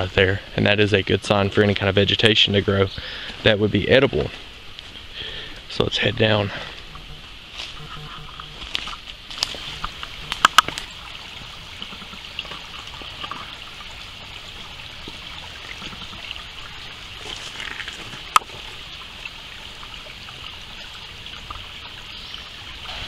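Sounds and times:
creek trickling over stones: 0.0 - 23.0.

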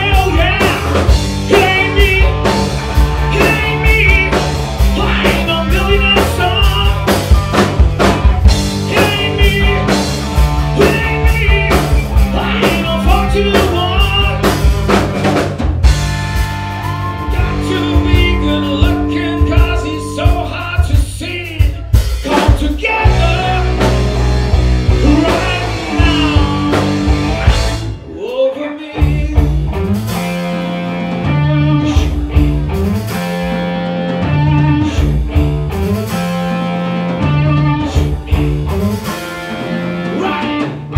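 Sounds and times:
vocals: 0.0 - 7.3, 8.7 - 15.0, 17.2 - 29.9, 30.5 - 32.4, 34.1 - 35.3, 37.1 - 40.9
bass guitar: 0.0 - 40.9
drum kit: 0.0 - 40.9
electric guitar: 0.0 - 40.9.

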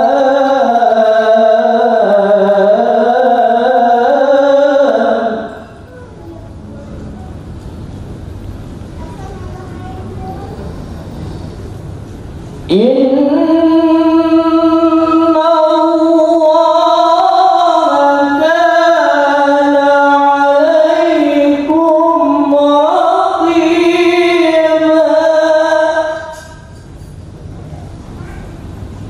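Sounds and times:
man chanting into a microphone: 0.0 - 5.6, 12.7 - 26.6.

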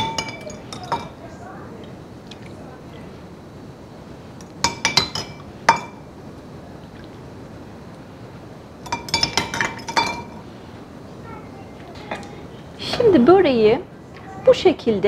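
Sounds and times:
metal ladle clinking on glass bowl: 8.8 - 10.4.

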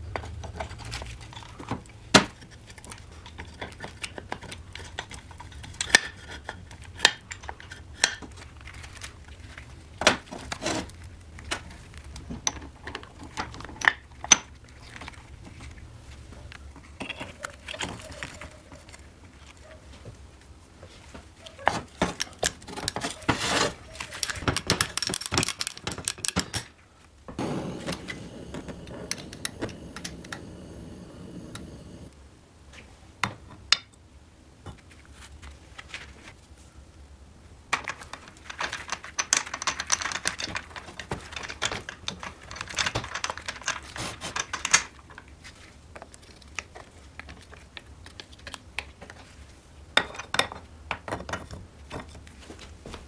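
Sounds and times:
soft steady noise: 0.0 - 53.0
metal engine parts clicking: 24.2 - 26.7.

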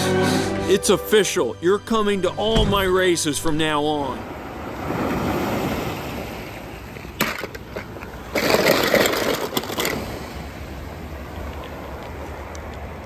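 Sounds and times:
surf washing over rocks: 3.9 - 9.3
toy cars clattering in plastic tub: 7.2 - 10.3.

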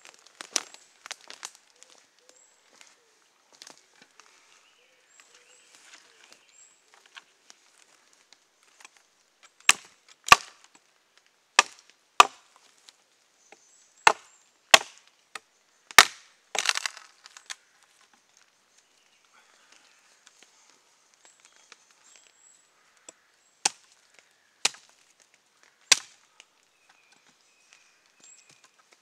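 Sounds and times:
hatchet chopping log: 9.6 - 10.6, 11.6 - 12.5, 14.0 - 15.0, 15.9 - 17.0, 24.6 - 24.9, 25.9 - 26.2.

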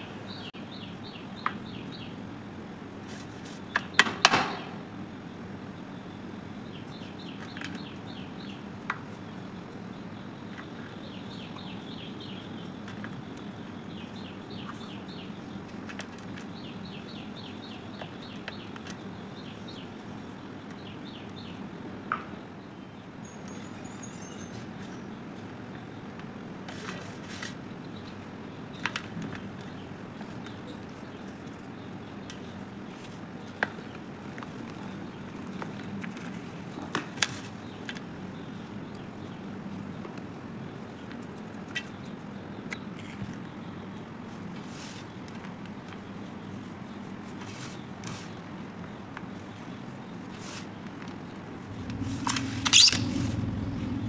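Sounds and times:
low steady hum: 51.3 - 54.0
hissy swishes: 51.6 - 54.0.

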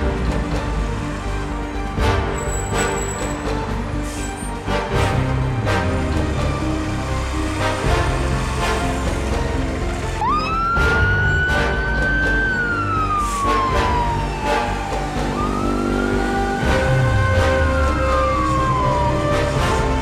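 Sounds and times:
background music with steady beat: 0.0 - 20.0
fire truck siren wailing: 5.6 - 20.0.

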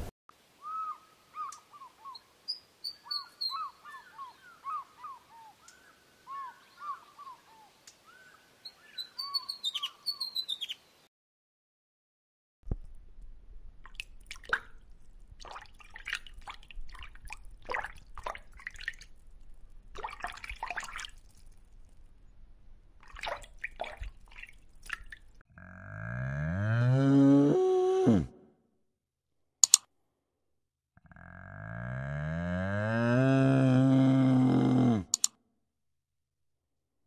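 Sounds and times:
drip-like clicks and splashes: 12.7 - 22.2, 23.0 - 25.4
cow mooing: 25.6 - 28.4, 31.0 - 35.2
sharp clicks: 29.6 - 29.9, 35.1 - 35.3.

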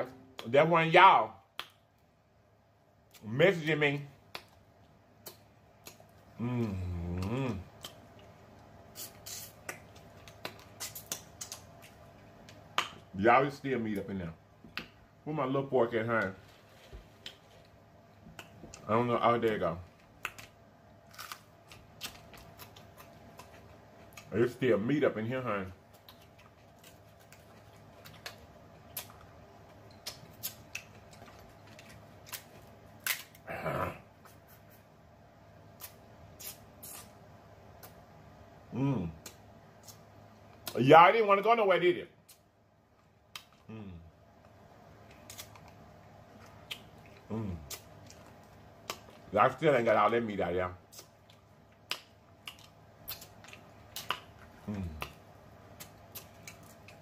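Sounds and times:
person humming: 6.4 - 7.7, 43.7 - 44.1, 47.3 - 47.7, 54.6 - 55.1
wet mouth smacks: 9.0 - 11.7, 20.2 - 20.6, 35.8 - 37.1, 50.9 - 55.2
crab shells cracking: 20.2 - 24.3.

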